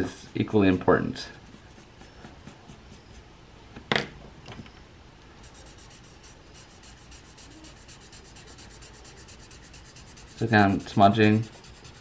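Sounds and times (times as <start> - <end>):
pencil scratching on paper: 0.0 - 3.2, 5.4 - 12.0
blending stump rubbing paper: 5.4 - 12.0.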